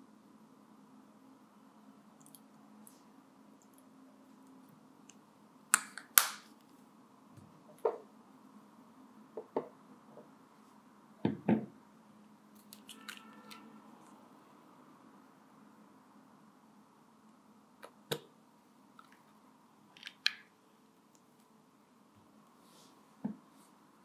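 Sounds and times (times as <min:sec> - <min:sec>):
containers and utensils clicking: 0:12.6 - 0:13.6.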